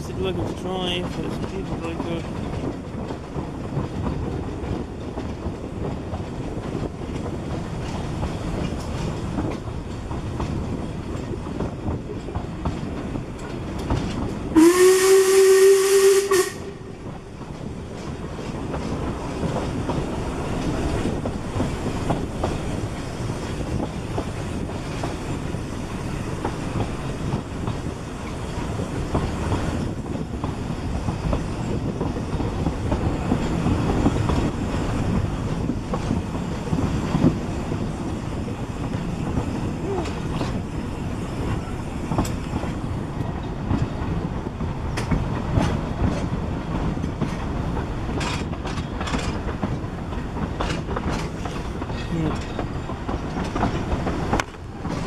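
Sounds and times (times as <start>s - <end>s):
train carriages clattering over rails: 0.0s - 55.0s
steam whistle: 14.6s - 16.8s.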